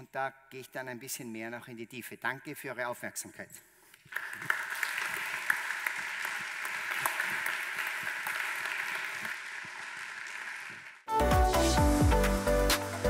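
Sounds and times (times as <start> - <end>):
audience applauding: 4.0 - 11.2
electronic music: 11.1 - 13.0.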